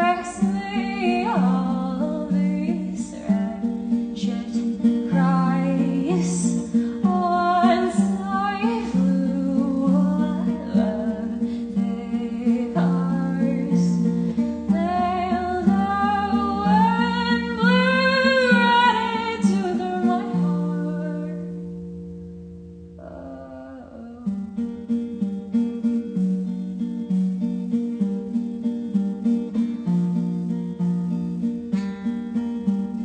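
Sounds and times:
person singing: 0.0s - 21.5s, 23.0s - 24.6s
acoustic guitar: 0.0s - 33.0s.

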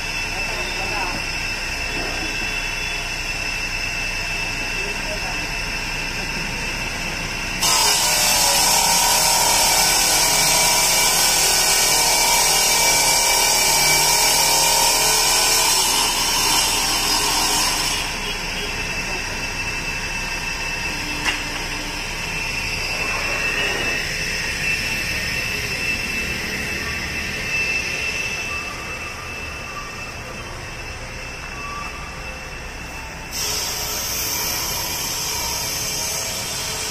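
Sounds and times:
saw running: 0.0s - 36.9s
stone saw grinding: 7.6s - 18.5s, 33.3s - 36.9s.

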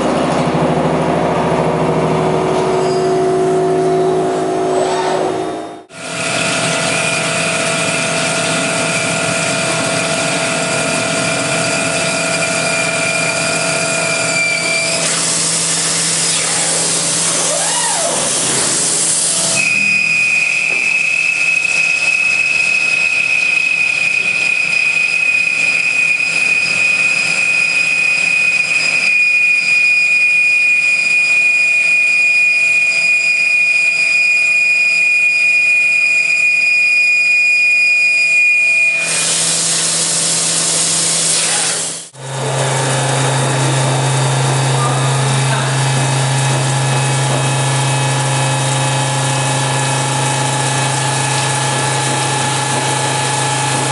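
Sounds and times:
high whine of milling cutter: 0.0s - 53.9s
hiss of coolant spray: 39.1s - 42.0s.

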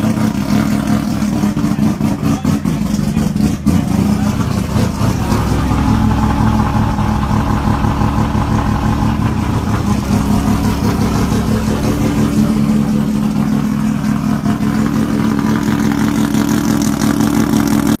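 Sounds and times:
rotary engine idling choppy: 0.0s - 18.0s.

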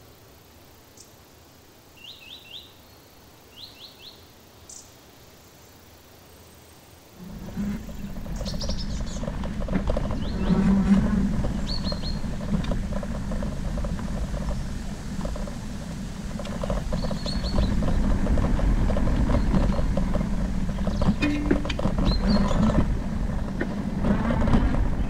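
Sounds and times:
bike hum and rumble: 7.2s - 25.0s
bike rattles and knocks: 7.2s - 25.0s.

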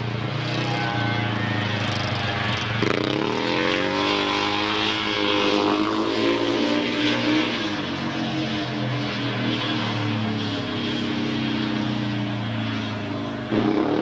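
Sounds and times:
motorcycle engine running hard: 0.0s - 3.8s, 9.4s - 14.0s.

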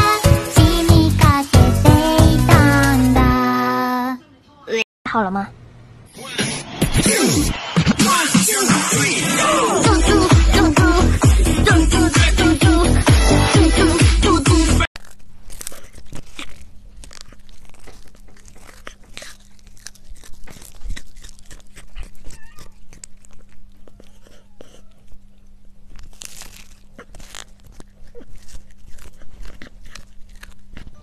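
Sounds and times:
cat chewing: 15.0s - 31.0s.

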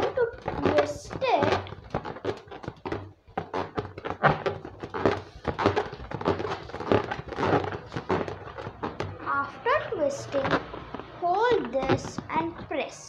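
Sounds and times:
rubber balloon rubbing and creaking: 0.0s - 13.0s.

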